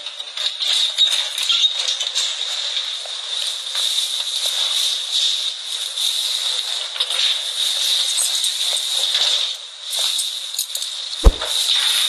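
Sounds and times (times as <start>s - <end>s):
sharp low thump: 11.2s - 11.6s.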